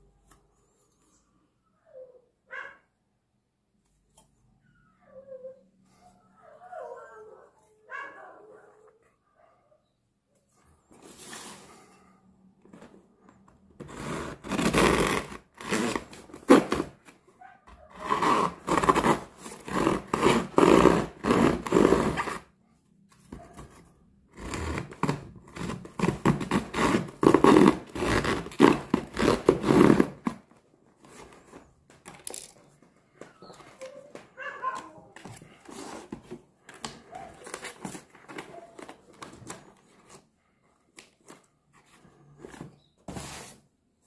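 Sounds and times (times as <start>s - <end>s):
saw rasping through cardboard: 13.8s - 17.0s, 17.9s - 22.5s, 24.3s - 30.4s.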